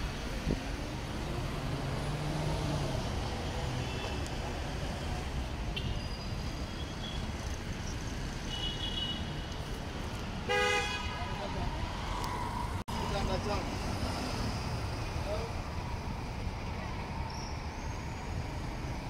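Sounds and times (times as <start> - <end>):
cars passing on road: 0.0 - 19.0
car horn toot: 10.5 - 11.2.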